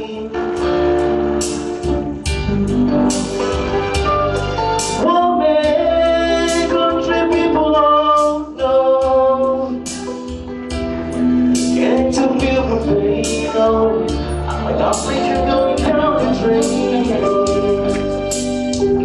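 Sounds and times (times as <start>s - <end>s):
man singing into a microphone: 0.0s - 1.0s, 2.4s - 3.4s, 4.9s - 10.8s, 11.6s - 18.3s
guitar accompaniment: 0.0s - 19.0s
percussion strikes: 0.5s - 5.9s, 13.2s - 19.0s.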